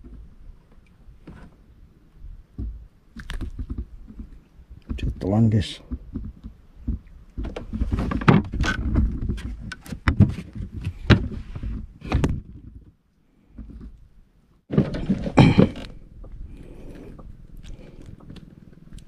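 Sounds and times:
knocks and thumps on wooden boat: 2.5 - 14.0, 14.7 - 17.4.

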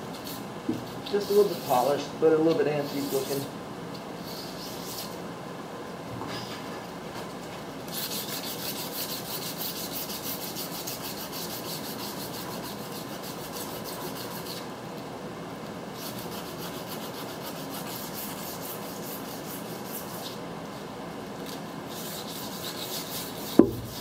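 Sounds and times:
sandpaper scratching steel rim: 0.1 - 1.9, 2.8 - 3.5, 4.2 - 5.2, 7.9 - 14.7, 16.0 - 20.4, 21.9 - 24.0.

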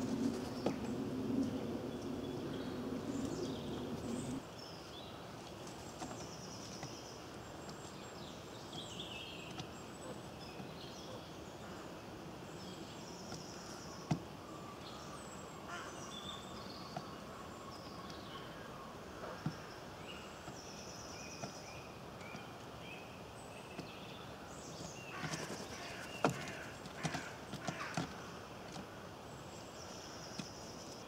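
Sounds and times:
low steady hum: 0.0 - 5.7
songbirds chirping and singing: 0.0 - 31.0.

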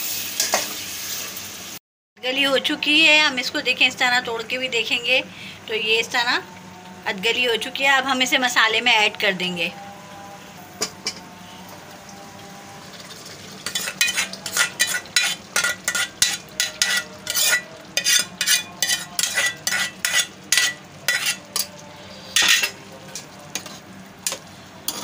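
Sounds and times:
low sizzle in pan: 0.0 - 1.8, 2.5 - 25.0
spoon scraping and clinking pan: 13.6 - 25.0.

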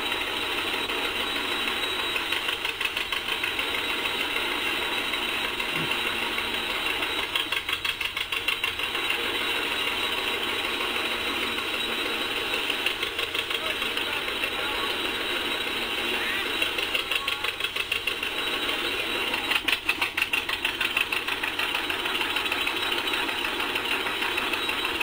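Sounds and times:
two-cylinder engine popping exhaust: 0.0 - 25.0.

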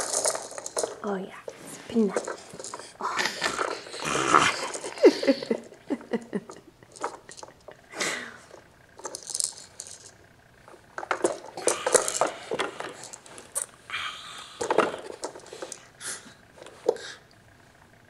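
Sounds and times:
plastic rattle ball: 0.0 - 5.8, 6.5 - 7.8, 8.4 - 13.8, 14.6 - 15.9
plastic toys clattering: 0.0 - 7.8, 8.4 - 13.8, 14.6 - 15.9, 16.5 - 17.1.

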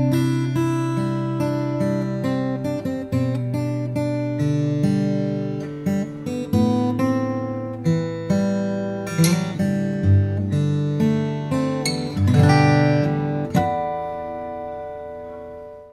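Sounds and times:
fingerstyle acoustic guitar: 0.0 - 15.9.

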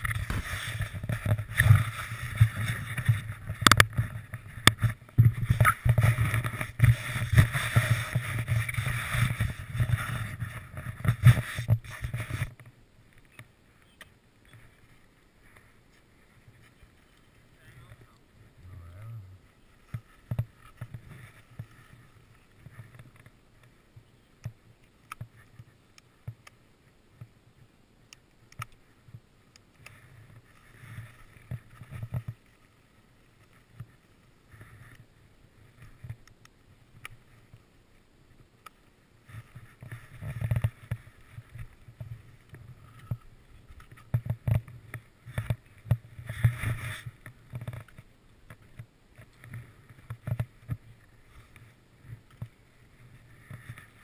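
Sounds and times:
skis scraping through snow: 0.0 - 12.6, 19.4 - 23.9, 29.9 - 36.2, 39.1 - 54.0.

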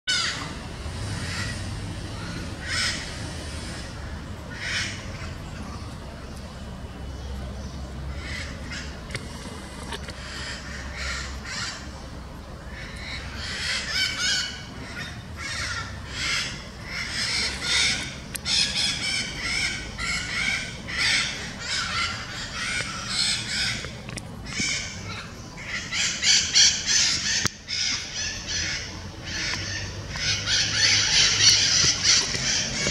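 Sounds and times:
parrots screeching: 2.2 - 3.9, 12.7 - 23.9, 24.5 - 32.9.

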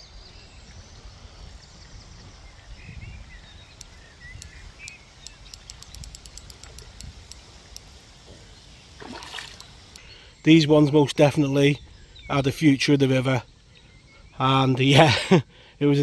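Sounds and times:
bird chirping: 0.0 - 16.0
faint high ticks: 3.7 - 10.2.

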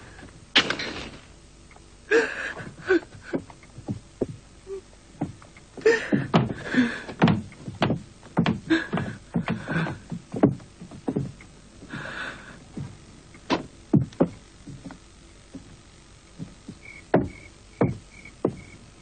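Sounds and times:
woman sobbing: 2.1 - 3.5, 5.8 - 7.1
footsteps on wooden boards: 3.0 - 4.5, 5.2 - 18.9
knocks on a door: 17.1 - 18.7.

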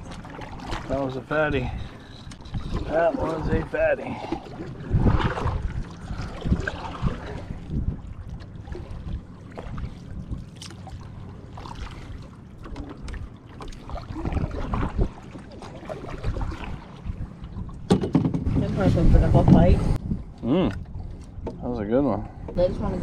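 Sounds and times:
paddle splashing in water: 0.0 - 1.0, 4.0 - 19.7
wind on microphone: 1.6 - 10.5, 13.9 - 21.4
paddle knocking in canoe: 17.8 - 18.8.

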